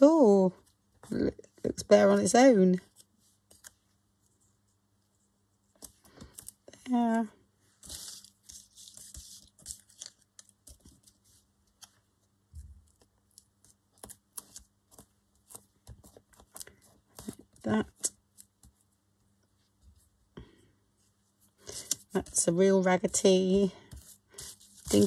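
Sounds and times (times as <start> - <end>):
paper rustling and crinkling: 7.8 - 12.0, 23.8 - 25.0.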